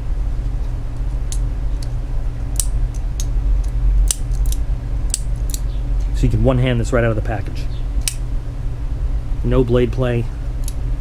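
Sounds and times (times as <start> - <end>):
steady low hum: 0.0 - 11.0
folding knife clicking open and closed: 2.5 - 5.6, 8.0 - 8.2.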